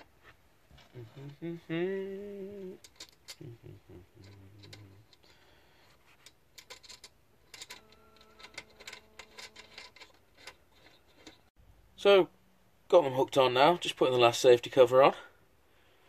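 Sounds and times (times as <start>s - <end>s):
small metallic clicks: 2.8s - 3.5s, 4.2s - 5.4s, 6.2s - 11.5s.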